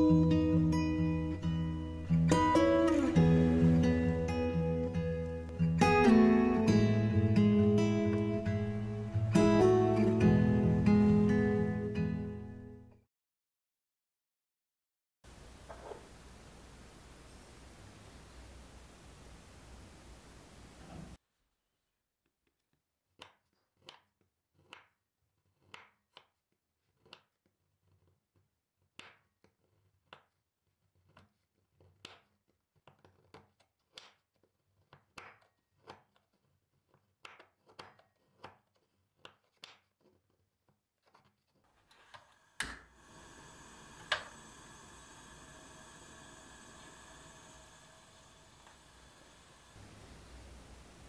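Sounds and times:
steady hiss: 15.3 - 21.2, 42.2 - 51.0.

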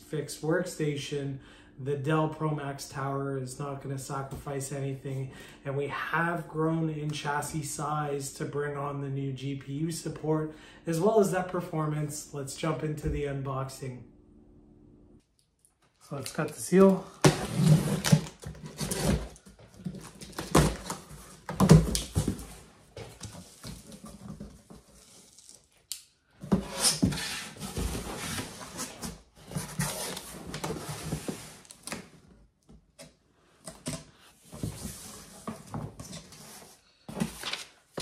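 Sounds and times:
cardboard scraping and rustling: 16.8 - 25.6, 26.4 - 32.0, 34.4 - 38.0.

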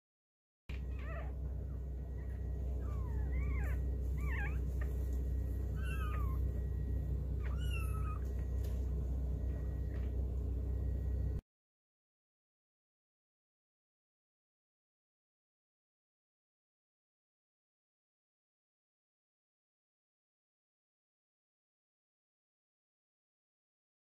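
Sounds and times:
puppies squeaking and whimpering: 0.7 - 8.6
steady low hum: 0.7 - 11.4.

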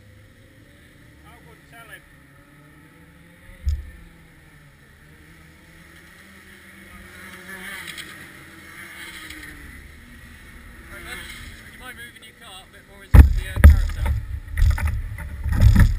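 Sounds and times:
distant kart engines passing: 0.0 - 15.9
wind rumble on microphone: 13.2 - 15.9.

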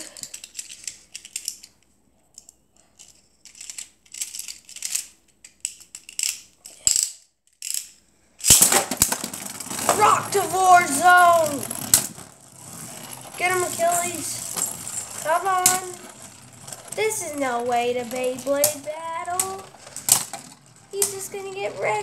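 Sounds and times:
top spinning: 8.4 - 22.0
top clacking on plastic floor: 8.5 - 10.5.

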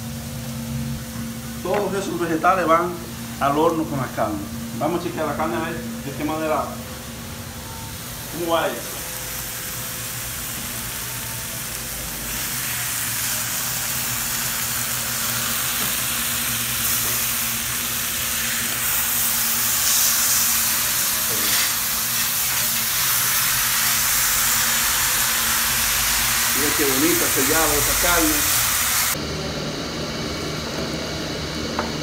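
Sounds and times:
meat sizzling on griddle: 7.4 - 29.2.

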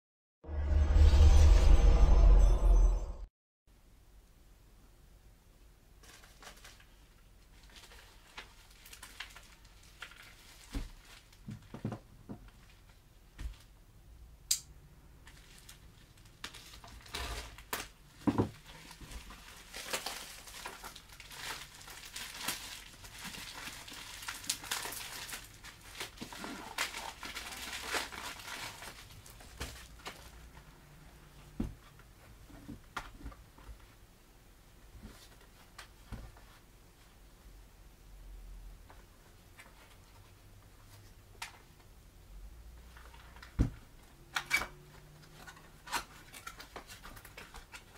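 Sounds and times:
plastic wrapping rustling: 6.0 - 13.7, 15.2 - 30.8, 44.9 - 47.9.

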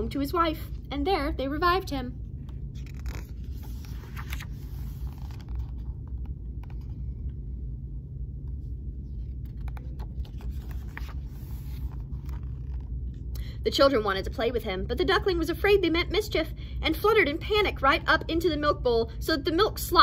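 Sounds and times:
steady low hum: 0.0 - 20.0
book pages rustling: 2.4 - 7.3, 8.5 - 13.2.

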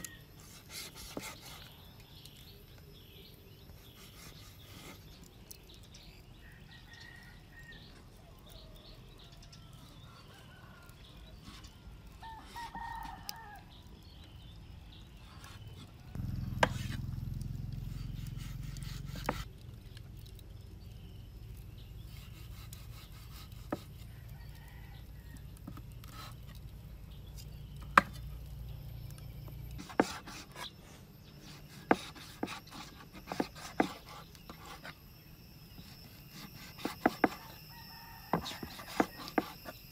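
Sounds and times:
cleaver chopping on wooden board: 16.5 - 17.0, 18.4 - 19.5, 27.8 - 28.2, 29.8 - 30.5, 31.6 - 34.8, 36.3 - 37.6, 38.3 - 39.8.

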